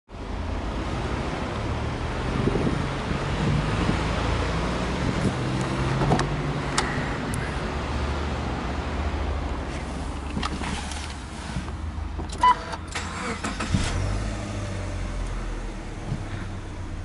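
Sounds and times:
car engine starting and idling: 0:08.8 - 0:17.0.

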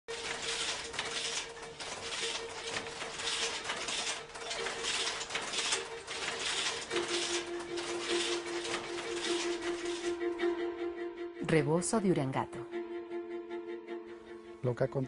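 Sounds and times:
loom swishing: 0:00.1 - 0:10.5.

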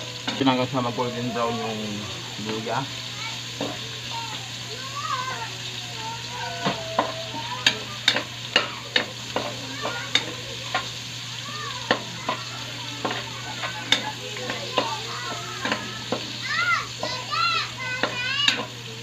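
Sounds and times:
food sizzling in hot oil: 0:00.0 - 0:19.0
spatula clinking against wok: 0:06.6 - 0:10.9, 0:18.0 - 0:18.8.

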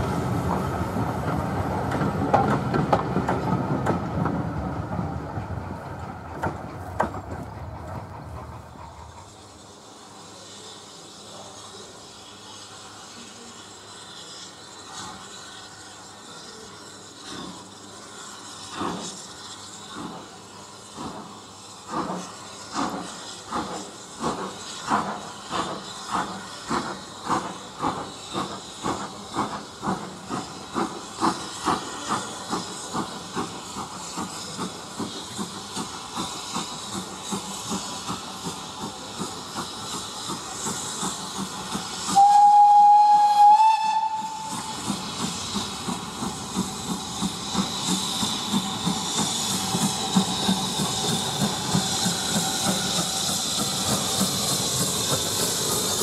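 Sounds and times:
steam hiss: 0:00.0 - 0:56.0
steam locomotive exhaust beats: 0:00.0 - 0:56.0
steam whistle blast: 0:42.1 - 0:44.9.

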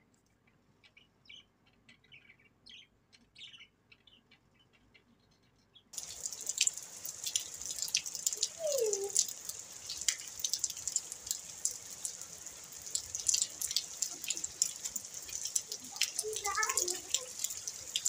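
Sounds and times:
rain splashing on roof: 0:06.0 - 0:18.0.

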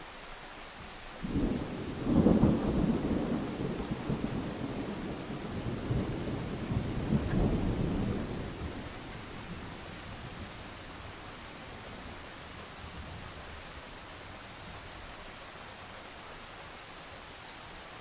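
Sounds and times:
rain hiss: 0:00.0 - 0:18.0
thunder rumble: 0:01.2 - 0:12.2.

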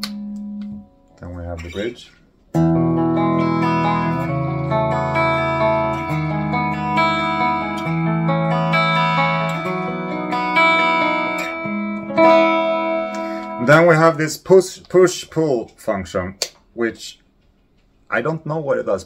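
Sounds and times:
clean electric guitar chords: 0:00.0 - 0:01.1, 0:02.5 - 0:14.1.

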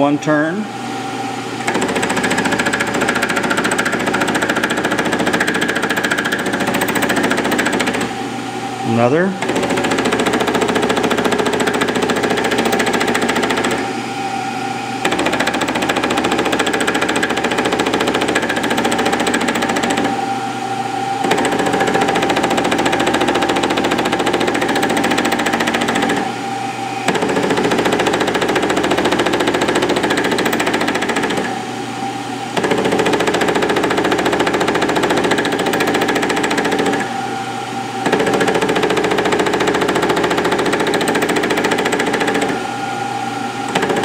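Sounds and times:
milling machine cutting steel: 0:09.0 - 0:14.0, 0:15.0 - 0:20.5, 0:21.2 - 0:26.4.

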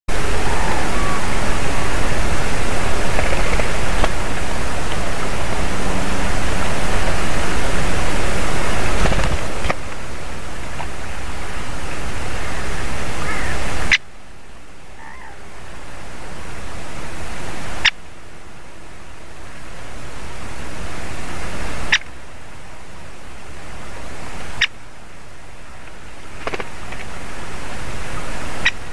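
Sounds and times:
loud steady rushing noise: 0:00.1 - 0:28.9.

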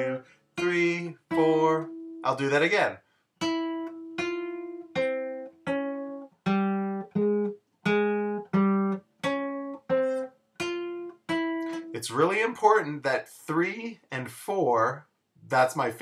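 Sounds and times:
classical guitar plucked notes: 0:00.0 - 0:02.4, 0:03.4 - 0:12.4.

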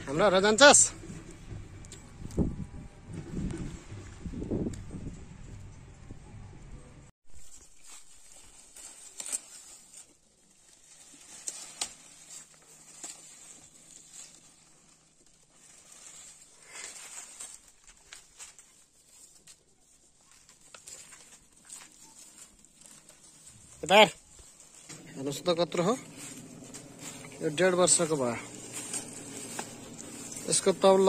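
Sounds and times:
goats chewing leaves: 0:00.1 - 0:05.2, 0:07.4 - 0:31.0
branch crackles: 0:07.3 - 0:31.0.

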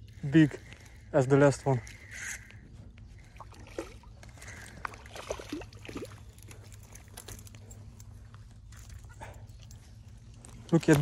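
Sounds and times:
fish splashing: 0:03.2 - 0:06.3.

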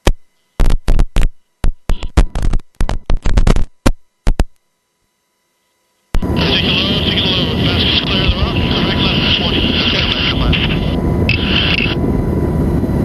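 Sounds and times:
helicopter cabin and rotor noise: 0:06.0 - 0:13.0.

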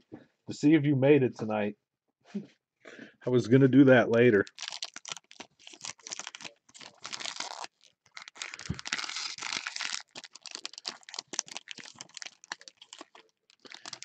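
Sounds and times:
foil wrapper crinkling: 0:04.4 - 0:14.0.

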